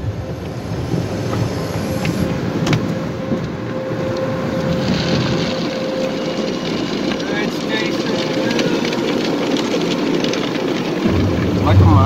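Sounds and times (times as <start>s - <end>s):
car wash machinery running: 0.0s - 12.0s
steady hum: 0.0s - 12.0s
water spraying onto car: 4.1s - 12.0s.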